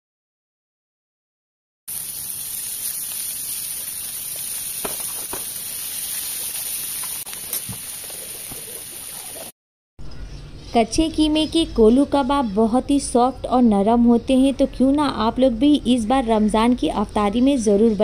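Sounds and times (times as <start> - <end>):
meat sizzling on hot plate: 1.9 - 9.5.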